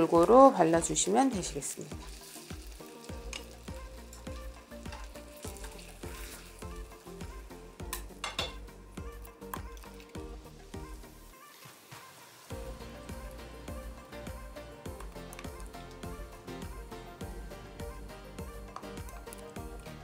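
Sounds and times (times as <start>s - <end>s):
chicken sizzling in a frying pan: 0.0s - 13.4s
soft background music with beat: 0.0s - 20.0s.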